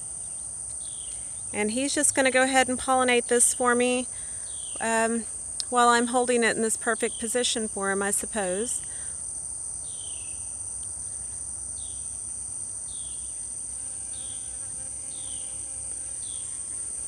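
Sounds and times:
high-pitched insect chorus: 0.0 - 17.0
bee buzzing: 11.8 - 17.0.

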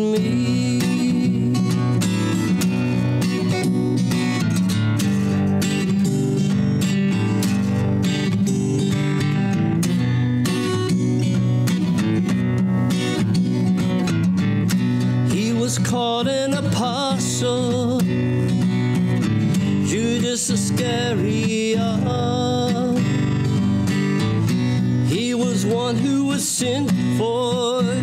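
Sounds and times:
man singing: 0.0 - 2.6, 15.2 - 18.6, 19.6 - 23.6, 25.0 - 28.0
acoustic guitar strumming: 0.0 - 28.0.

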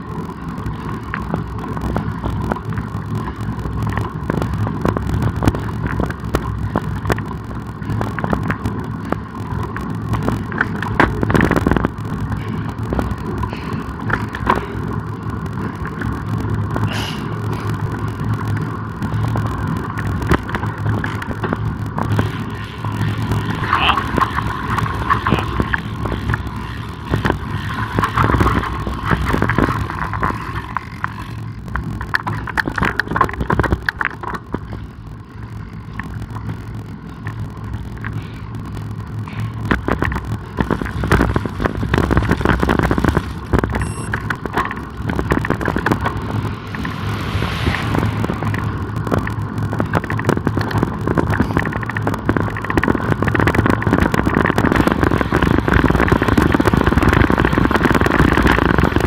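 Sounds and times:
motor traffic: 0.0 - 59.0
tyres rumbling on road: 0.0 - 59.0
bicycle knocks: 0.6 - 34.8
wind on microphone: 35.7 - 59.0.

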